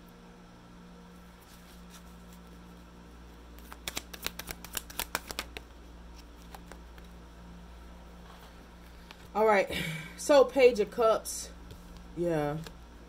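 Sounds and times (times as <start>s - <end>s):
cards being shuffled: 1.4s - 2.7s, 3.5s - 7.2s.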